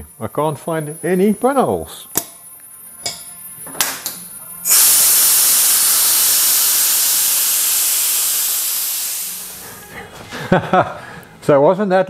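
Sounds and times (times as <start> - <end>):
valve click: 3.8 - 9.6
compressed air hissing from valve: 4.6 - 9.9.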